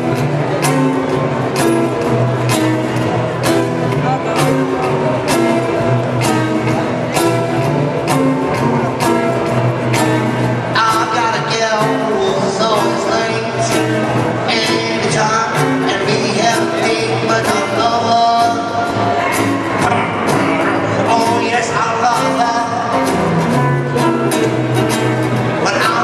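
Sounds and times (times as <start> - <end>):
music with steady beat: 0.0 - 26.0
person singing: 3.4 - 26.0.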